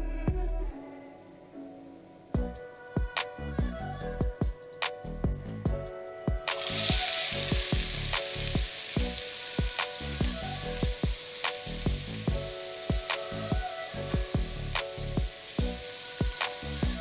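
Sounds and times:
background music with beat: 0.0s - 0.9s, 2.3s - 17.0s
onions sizzling in hot oil: 6.5s - 17.0s.

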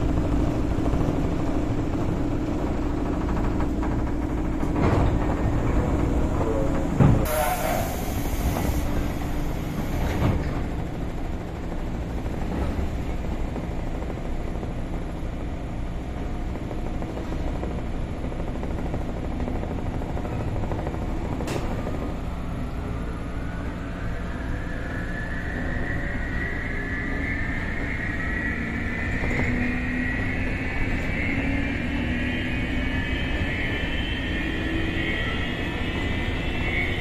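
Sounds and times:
traction motors whining: 0.0s - 16.1s, 19.0s - 37.0s
steady low train hum: 0.0s - 37.0s
air hiss: 7.3s - 10.0s.

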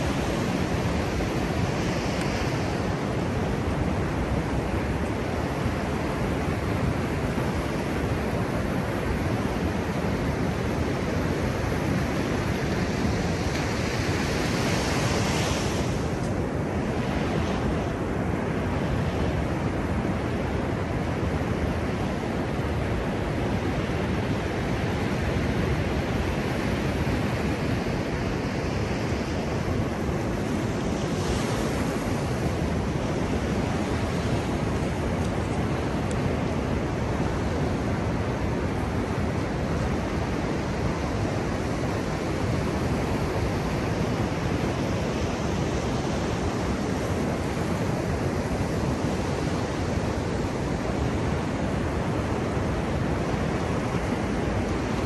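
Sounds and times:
waves breaking on sand: 0.0s - 55.0s.

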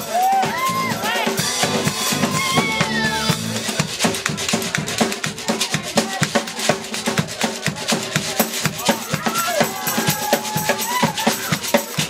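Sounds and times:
drum kit: 0.0s - 12.0s
hand percussion: 0.0s - 12.0s
bass holding low notes: 0.7s - 5.4s.

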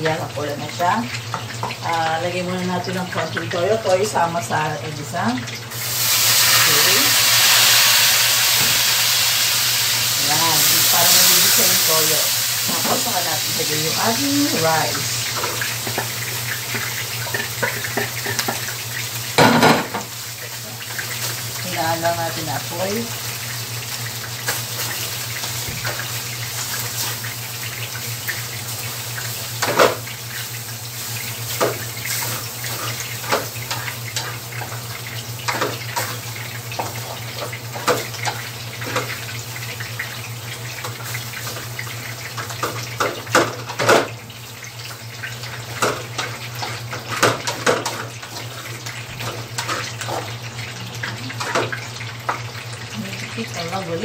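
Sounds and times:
food sizzling in frying pans: 0.0s - 54.0s.

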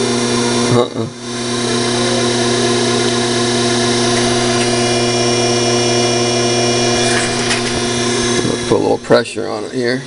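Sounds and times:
metal lathe humming and whining: 1.2s - 9.9s.

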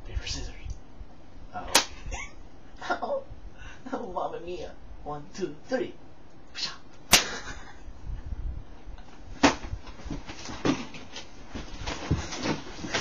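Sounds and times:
people shuffling about: 9.1s - 13.0s.

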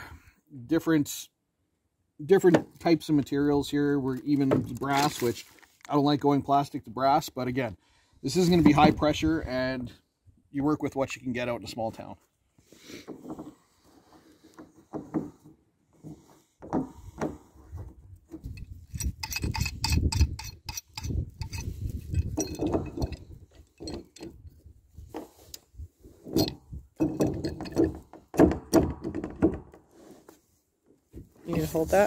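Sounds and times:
low rumbling handling noise: 16.9s - 25.4s
pipe fitting clicks and creaks: 18.3s - 24.5s.

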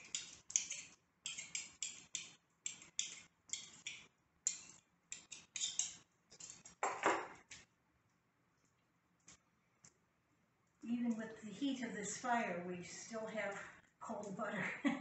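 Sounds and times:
knives scraping ceramic bowl: 0.0s - 7.1s.

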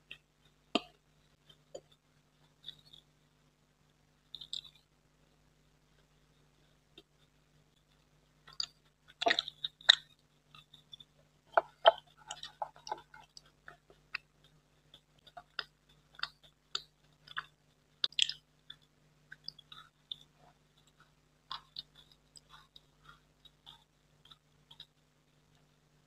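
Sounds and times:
mouth clicks and smacks: 0.1s - 3.1s, 4.4s - 4.9s, 8.5s - 25.7s
chewing with mouth clicks: 4.4s - 4.8s, 8.5s - 25.8s.

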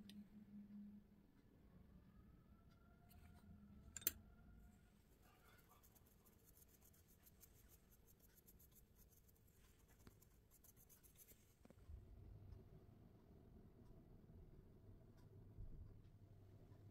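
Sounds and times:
paintbrush scratching on cookie: 5.0s - 11.8s.

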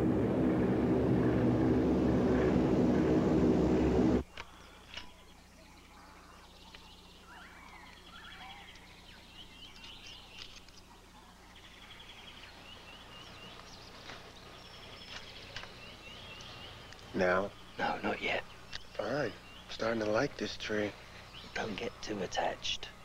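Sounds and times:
faint low hum: 0.0s - 23.0s
birds chirping and trilling: 1.2s - 23.0s.

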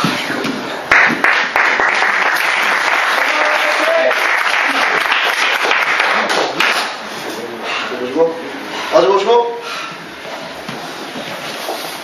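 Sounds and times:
group applauding: 0.8s - 7.0s.

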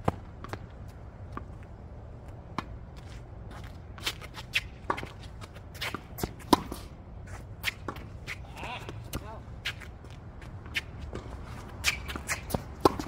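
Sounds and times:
shoes scuffing on hard court: 2.6s - 13.0s.

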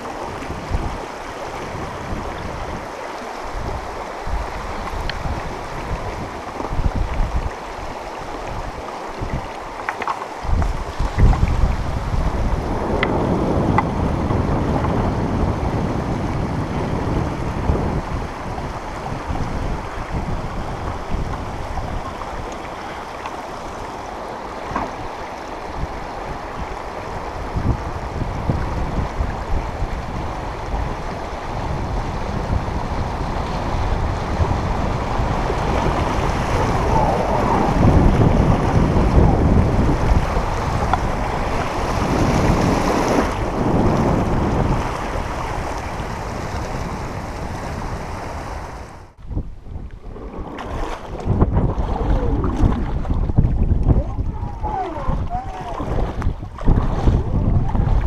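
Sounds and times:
wind buffeting microphone: 0.0s - 58.0s
river rapids rushing: 28.8s - 49.0s.

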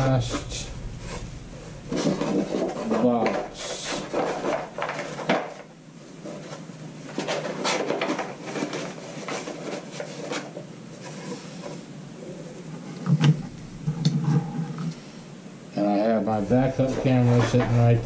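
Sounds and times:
cards and cardboard rustling: 1.9s - 11.9s, 16.6s - 18.0s.

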